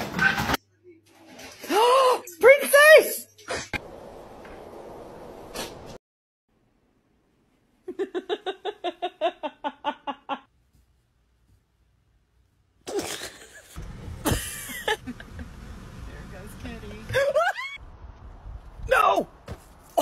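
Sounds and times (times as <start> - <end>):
person laughing: 7.9 - 10.5, 12.9 - 15.6, 17.1 - 17.8.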